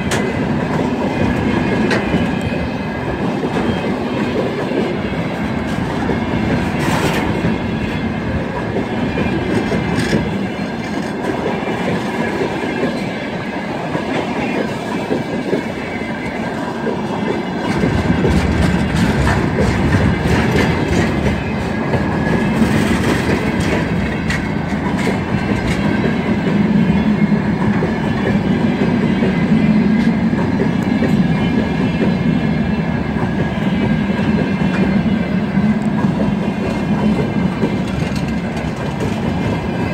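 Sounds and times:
freight train wheels rumbling: 0.0s - 39.9s.

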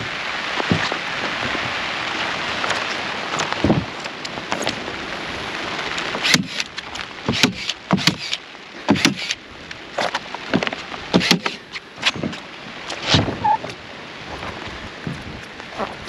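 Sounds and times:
knocks and thuds: 0.6s - 1.8s, 8.9s - 9.2s.

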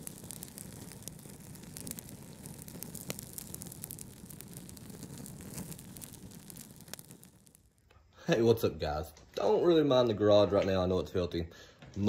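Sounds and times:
wood fire crackling and popping: 0.0s - 12.0s.

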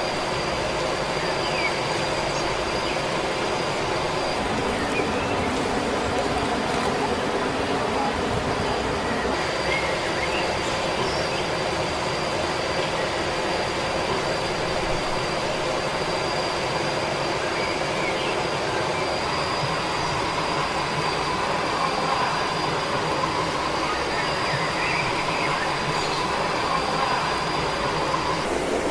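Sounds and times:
waterfall rushing: 2.6s - 10.4s.

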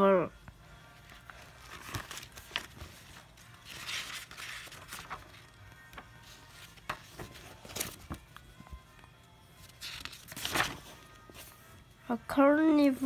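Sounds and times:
book pages rustling: 0.9s - 11.8s.

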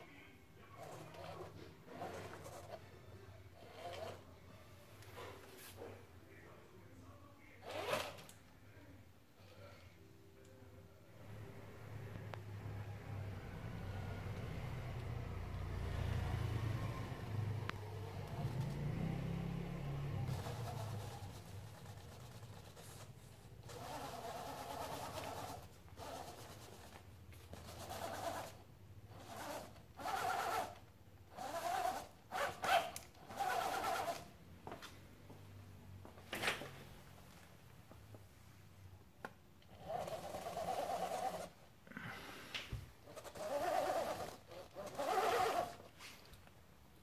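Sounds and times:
toy car electric motor whining: 0.8s - 2.8s, 3.6s - 4.2s, 7.6s - 8.3s, 20.2s - 23.0s, 23.6s - 34.3s, 39.8s - 41.6s, 43.1s - 45.9s.

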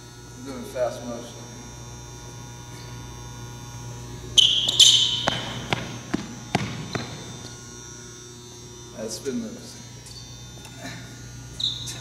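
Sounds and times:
sneakers squeaking on gym floor: 4.3s - 7.6s, 11.5s - 12.0s
feet landing thuds: 5.0s - 7.6s.

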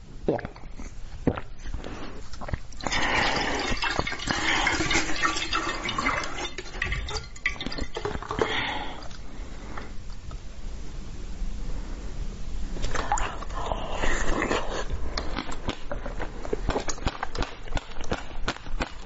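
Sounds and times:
liquid sloshing and splashing: 2.4s - 9.3s.

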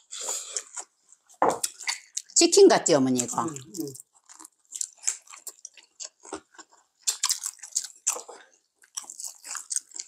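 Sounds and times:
crisp crunching and chewing: 3.2s - 10.0s.

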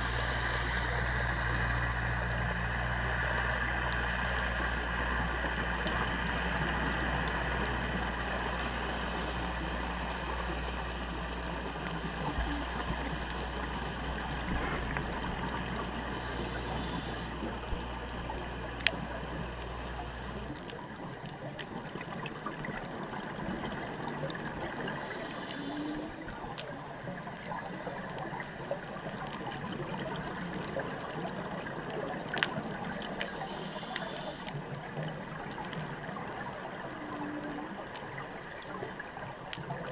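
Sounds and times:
low hum of boat engine: 0.0s - 39.9s
underwater hiss with crackling: 0.0s - 39.9s.

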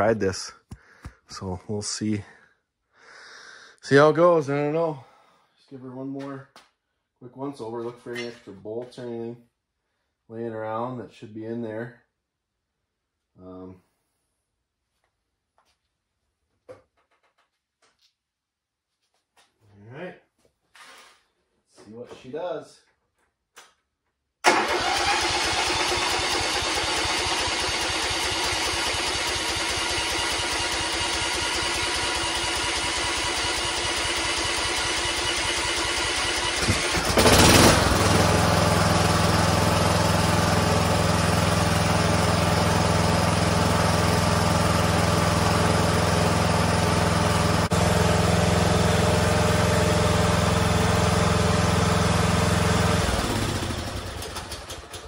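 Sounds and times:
lawn mower engine running: 24.5s - 55.0s.

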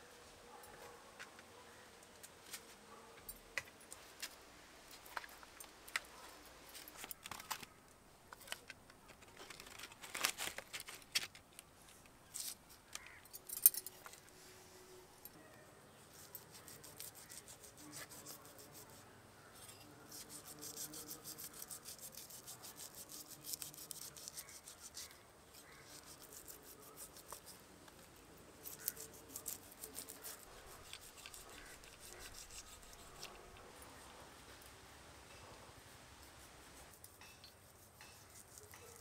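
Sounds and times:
knife scraping fish scales: 19.6s - 27.6s, 28.6s - 33.6s, 36.9s - 39.0s.

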